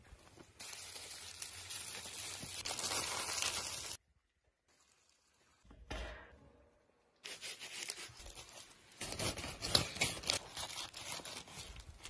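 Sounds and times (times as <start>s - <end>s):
foil crinkling: 0.4s - 4.0s, 7.6s - 12.0s
knife carving crisp roast skin: 7.2s - 12.0s.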